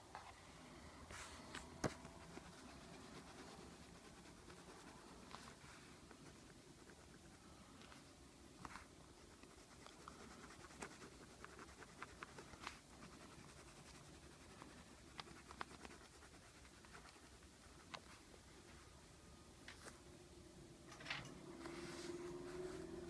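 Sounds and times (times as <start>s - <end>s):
pencil scratching on paper: 1.2s - 7.6s, 8.7s - 18.2s
pencil ticks and taps: 14.6s - 16.0s.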